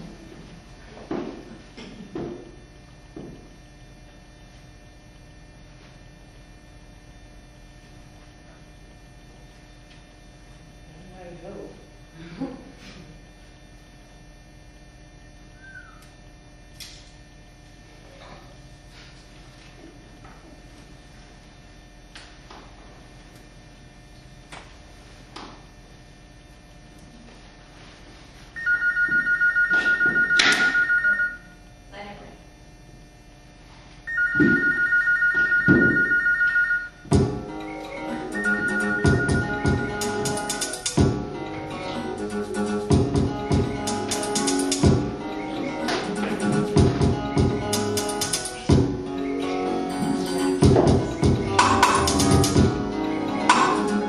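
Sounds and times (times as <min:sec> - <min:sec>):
electrical hum: 0:00.0 - 0:54.0
telephone ringing two-tone: 0:28.6 - 0:31.5, 0:34.1 - 0:37.0, 0:38.3 - 0:40.0.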